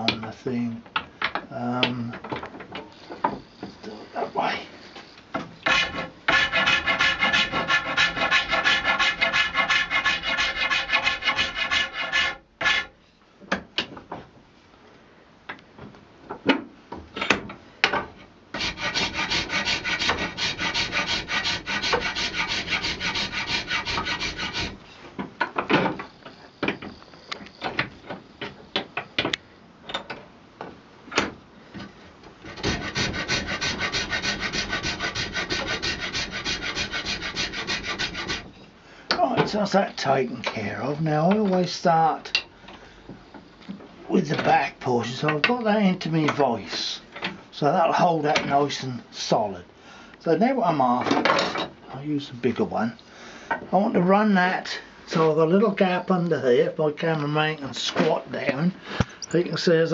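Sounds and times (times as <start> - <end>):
hand file rasping on horn: 5.6 - 12.9, 18.6 - 24.8, 32.6 - 38.5
tools knocking and clattering: 25.2 - 27.0.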